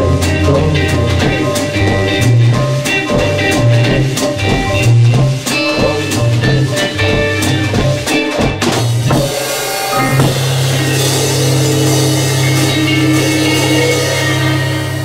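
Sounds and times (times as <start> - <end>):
drum beat: 0.0 - 14.1
live rock band playing: 0.0 - 15.0
cymbals ringing: 9.2 - 15.0.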